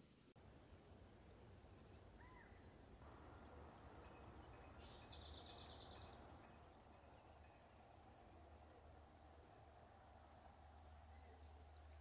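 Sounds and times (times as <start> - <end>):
faint songbird calls: 1.7 - 8.0.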